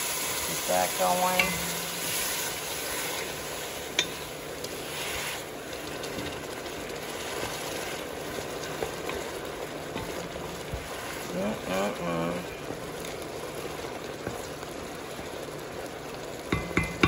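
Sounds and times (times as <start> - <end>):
broth sizzling and bubbling: 0.0 - 17.0
wooden spoon stirring: 1.2 - 15.8
spoon knocking against pot: 16.5 - 17.0.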